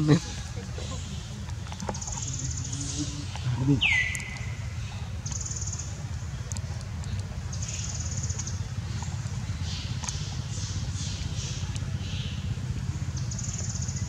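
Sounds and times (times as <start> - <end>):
faint clicks: 6.4 - 7.4.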